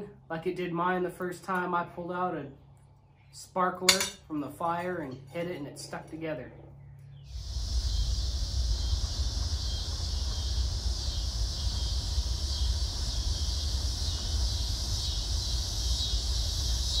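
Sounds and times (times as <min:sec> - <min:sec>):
wind rumble on microphone: 0:07.2 - 0:17.0
high shimmering insect chorus: 0:07.3 - 0:17.0.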